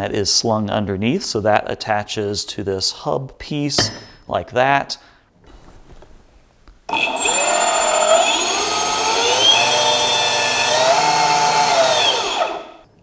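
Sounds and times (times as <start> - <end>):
electric motors whining: 6.9 - 12.8.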